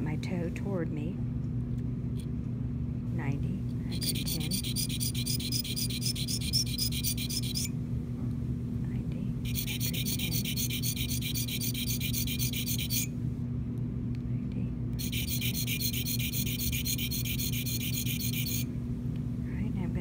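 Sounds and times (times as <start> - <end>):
low steady hum: 0.0 - 20.0
sharpening stone strokes on steel: 3.9 - 7.7, 9.5 - 13.1, 15.0 - 18.6.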